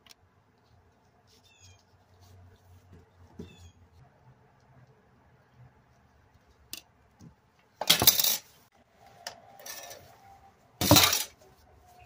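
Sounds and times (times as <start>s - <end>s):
hard items clattering on tabletop: 10.8s - 11.4s.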